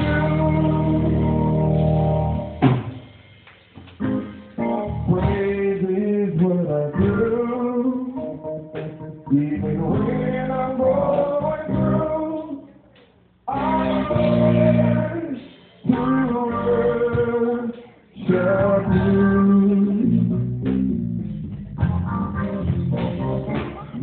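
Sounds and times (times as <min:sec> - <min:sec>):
person singing: 0:00.0 - 0:01.7, 0:04.6 - 0:08.6, 0:09.2 - 0:12.8, 0:13.5 - 0:20.5
guitar accompaniment: 0:00.0 - 0:12.6, 0:13.5 - 0:24.0.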